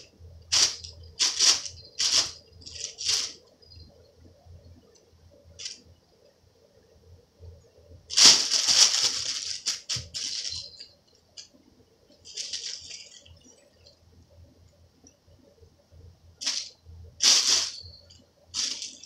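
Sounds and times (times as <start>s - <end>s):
plastic bag crinkling: 0.5s - 3.4s, 8.1s - 10.9s, 12.2s - 13.5s, 16.4s - 17.9s, 18.6s - 19.0s.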